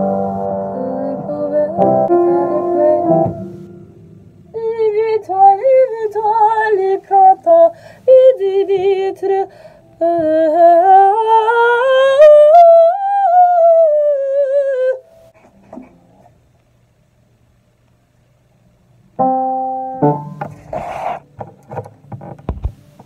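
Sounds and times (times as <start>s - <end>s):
piano chord: 0.0s - 4.6s, 19.2s - 20.4s
woman singing: 0.7s - 3.4s, 4.5s - 15.0s.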